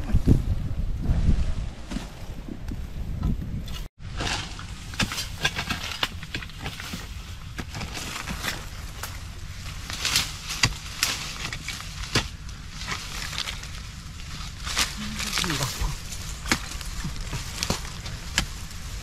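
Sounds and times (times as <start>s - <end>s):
spade digging into soil: 4.1s - 9.0s, 9.8s - 13.6s.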